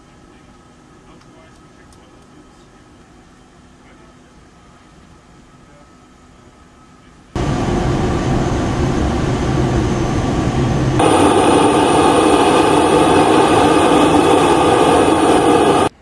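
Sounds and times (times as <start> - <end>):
cockpit engine noise in flight: 7.2 - 16.0
turboprop engines whining: 7.4 - 16.0.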